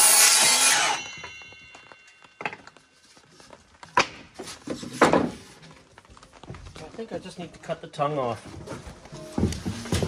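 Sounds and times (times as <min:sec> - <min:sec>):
miter saw cutting wood: 0:00.0 - 0:01.0.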